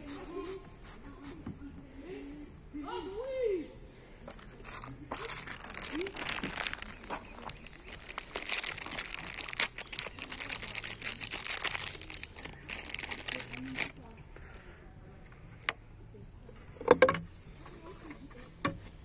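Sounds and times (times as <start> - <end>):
plastic bag crinkling: 4.4 - 14.1.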